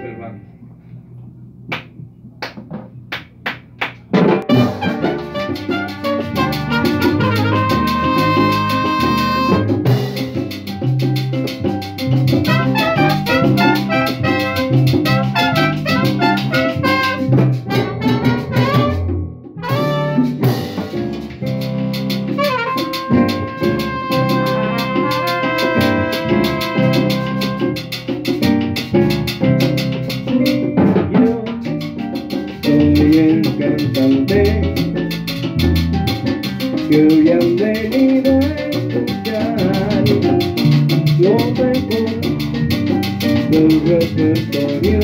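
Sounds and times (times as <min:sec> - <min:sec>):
congas: 0:01.7 - 0:45.0
trumpets: 0:04.4 - 0:09.8, 0:12.5 - 0:20.7, 0:22.3 - 0:27.9
keyboard: 0:19.7 - 0:37.3.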